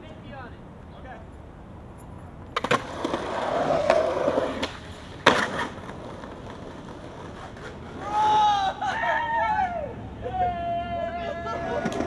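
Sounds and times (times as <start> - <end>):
skateboard wheels rolling: 2.1 - 12.0
skateboard slap on concrete: 2.5 - 8.1, 11.8 - 12.0
skateboard clacks: 2.5 - 8.3, 11.6 - 12.0.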